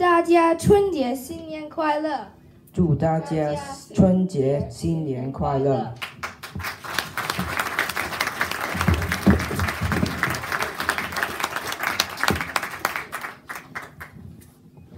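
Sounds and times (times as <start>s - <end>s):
audience applauding: 6.0s - 14.2s.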